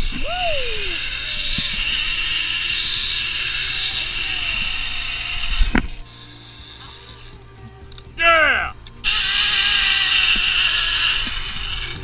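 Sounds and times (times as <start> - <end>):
zip-line pulleys whirring on cable: 0.0 - 7.6, 9.0 - 12.0.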